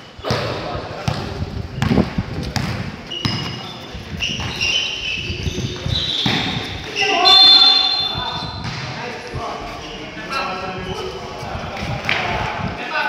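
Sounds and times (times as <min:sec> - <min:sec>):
sneakers squeaking on floor: 0:00.0 - 0:11.4
basketball bouncing: 0:00.2 - 0:03.6.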